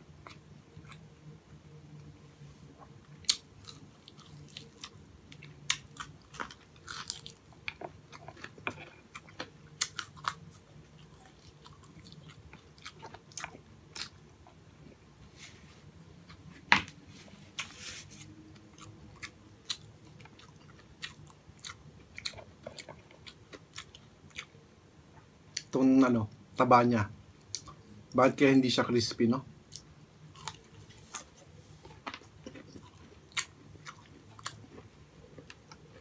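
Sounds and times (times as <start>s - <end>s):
crunching fried food: 3.2s - 14.2s, 29.7s - 36.0s.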